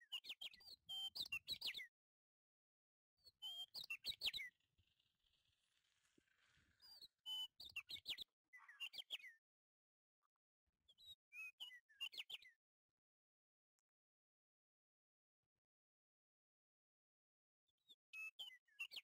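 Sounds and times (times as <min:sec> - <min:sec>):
small bird chirping: 0:00.0 - 0:01.9, 0:03.2 - 0:09.4, 0:10.9 - 0:12.6.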